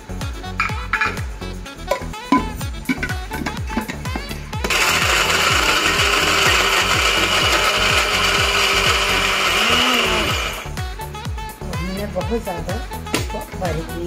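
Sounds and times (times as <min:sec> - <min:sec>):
electric grinder grinding nuts: 0:02.9 - 0:10.8.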